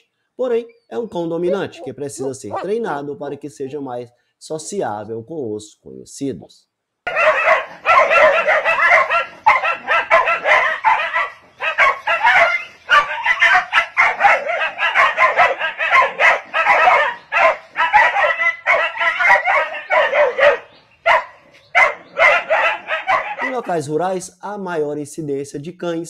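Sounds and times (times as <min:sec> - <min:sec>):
dogs barking rapidly: 0:01.0 - 0:02.9, 0:07.1 - 0:23.9.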